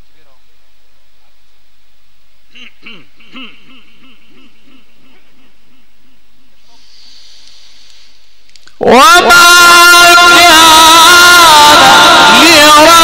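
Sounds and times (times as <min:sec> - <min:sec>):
soft hiss: 0:06.1 - 0:08.8
person chanting: 0:08.8 - 0:13.0.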